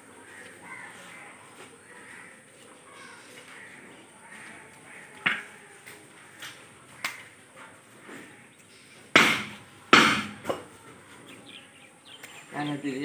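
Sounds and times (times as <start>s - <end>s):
knives chopping raw meat: 9.2s - 10.6s.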